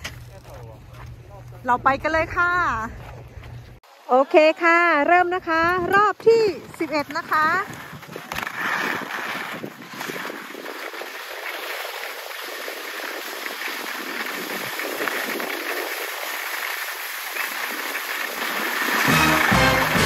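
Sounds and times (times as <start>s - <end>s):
background music: 19.1s - 20.0s.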